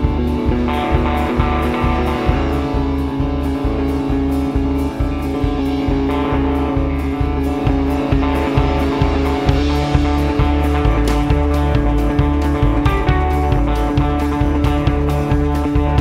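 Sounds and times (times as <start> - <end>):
bass: 0.0 - 16.0
drums: 0.0 - 16.0
electric guitar: 0.0 - 16.0.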